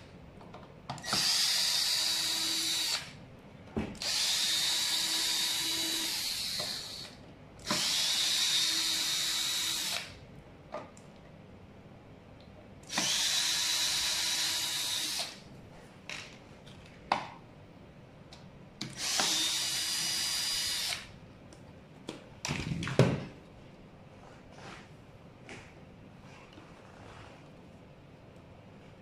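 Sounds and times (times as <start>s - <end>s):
cordless drill whine: 1.0s - 3.1s, 4.0s - 7.1s, 7.7s - 10.1s, 12.9s - 15.4s, 19.0s - 21.1s.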